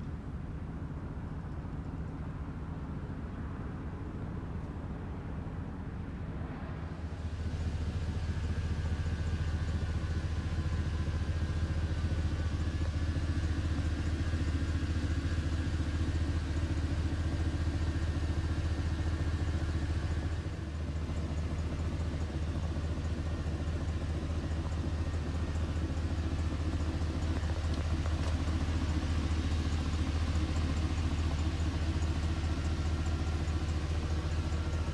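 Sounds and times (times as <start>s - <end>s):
truck engine idling: 7.0s - 34.9s.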